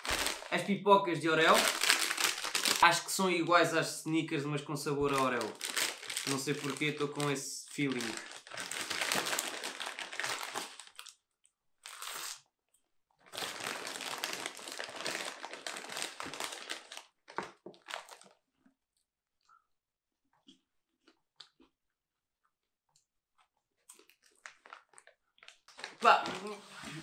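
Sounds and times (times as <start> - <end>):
snack bag crinkling: 0.0 - 0.7, 1.4 - 3.1, 5.1 - 11.2, 11.8 - 12.4, 13.2 - 18.4, 23.8 - 26.4.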